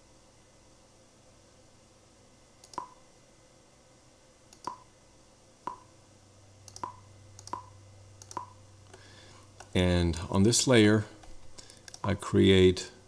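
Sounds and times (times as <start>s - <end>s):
computer mouse button clicks: 2.6s - 3.0s, 4.5s - 4.8s, 6.7s - 8.5s.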